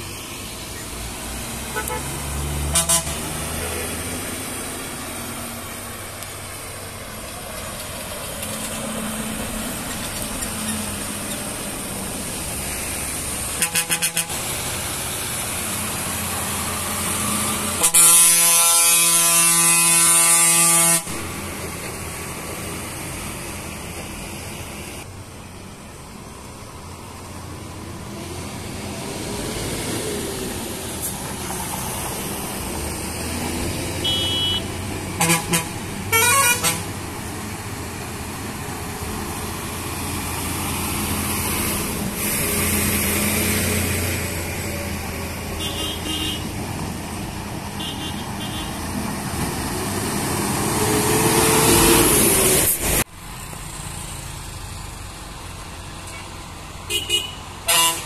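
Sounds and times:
car passing: 0.0s - 17.8s, 27.1s - 53.1s
loud horn blasts: 1.7s - 4.0s, 13.5s - 14.5s, 17.7s - 21.3s, 34.0s - 37.0s, 45.5s - 46.5s, 47.8s - 48.8s, 56.9s - 58.0s.

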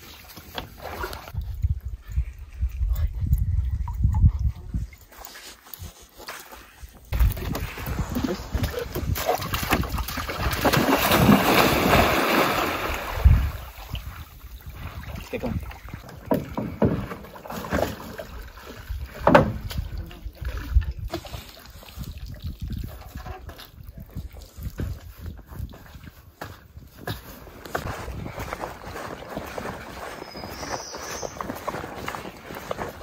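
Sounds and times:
paddle splashes: 0.0s - 1.4s, 7.2s - 23.7s
rushing water: 7.1s - 23.4s
paddle knocking against canoe hull: 16.1s - 18.2s, 19.1s - 19.8s.

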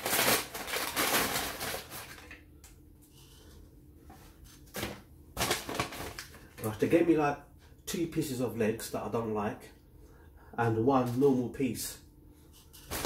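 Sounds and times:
paper packaging rustling: 0.0s - 2.4s, 4.3s - 6.7s, 12.8s - 13.0s.

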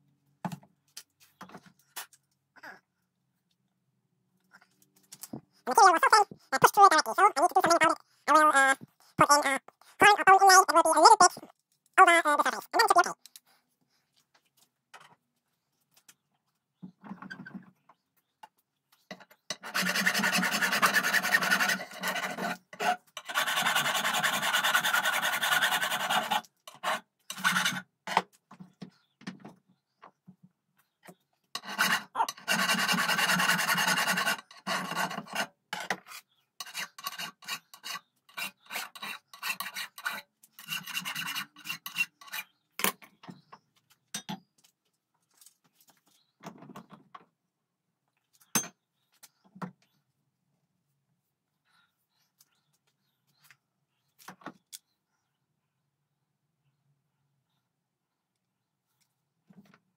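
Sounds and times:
hand file rasping on metal: 19.5s - 27.8s, 31.6s - 42.6s.

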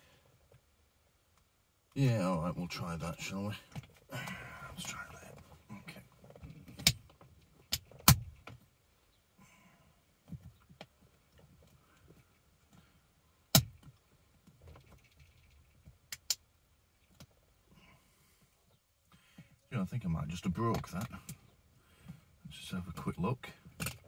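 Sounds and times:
sharp plastic clicks: 14.8s - 16.5s.

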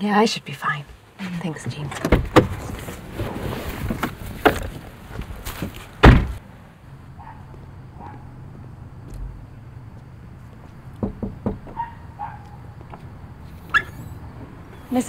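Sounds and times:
car door slamming: 6.0s - 6.4s
knocking on door: 11.0s - 11.8s.

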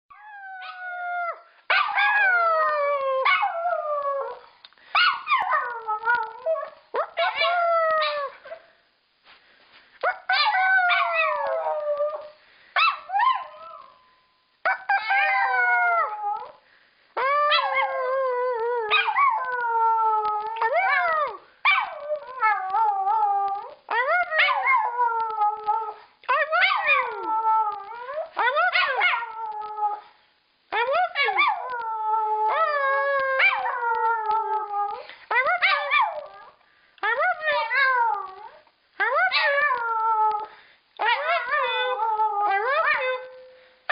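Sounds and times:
dog howling: 30.8s - 43.5s.

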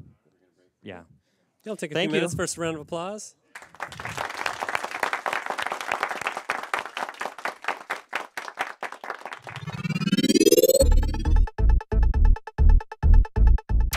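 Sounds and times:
audience applauding: 3.6s - 10.0s
music swell rising in pitch: 9.4s - 11.5s.

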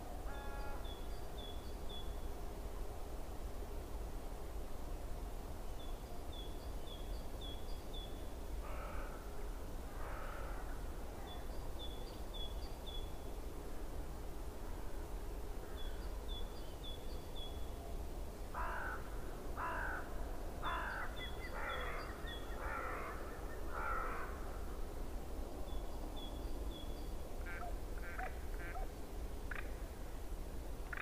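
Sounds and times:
low background noise: 0.0s - 31.0s
crow cawing: 8.6s - 9.2s, 10.0s - 10.7s, 18.6s - 22.0s, 22.6s - 24.4s.

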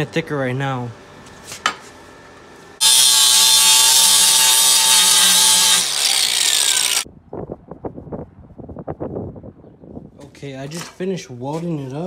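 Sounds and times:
angle grinder grinding metal: 2.8s - 7.0s.

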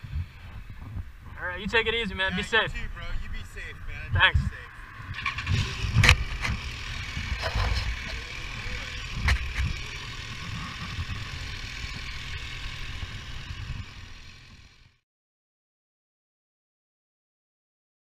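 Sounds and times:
motorcycle engine running: 4.6s - 15.0s.

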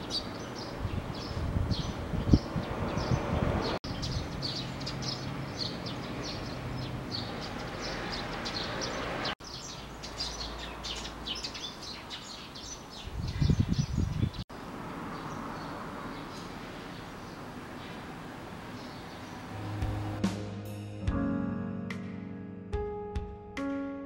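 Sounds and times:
small birds chirping: 0.0s - 14.4s, 15.1s - 19.5s
low thumps: 19.6s - 21.3s.

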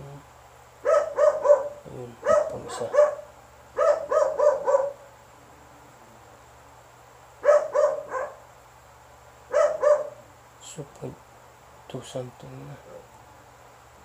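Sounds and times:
dog barking: 0.8s - 5.1s, 7.4s - 8.5s, 9.5s - 10.3s.

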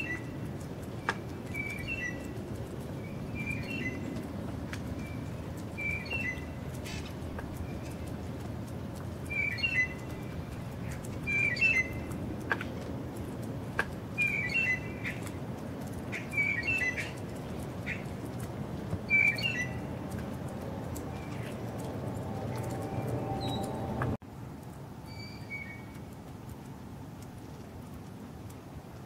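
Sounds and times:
small bird chirping: 0.0s - 8.3s, 9.2s - 12.2s, 14.1s - 15.4s, 16.1s - 18.1s, 19.0s - 20.1s, 22.5s - 23.8s
low background noise: 0.0s - 29.0s.

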